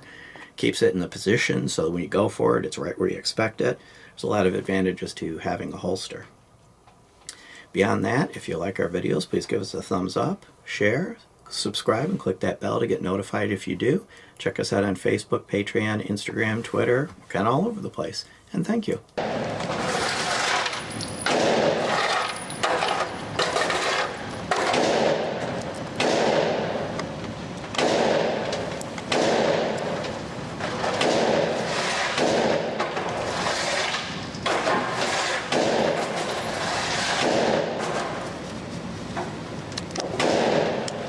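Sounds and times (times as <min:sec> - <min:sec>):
gunshots echoing indoors: 0:19.2 - 0:19.6, 0:21.2 - 0:21.8, 0:24.6 - 0:27.0, 0:27.7 - 0:32.9, 0:35.5 - 0:36.1, 0:40.1 - 0:41.0.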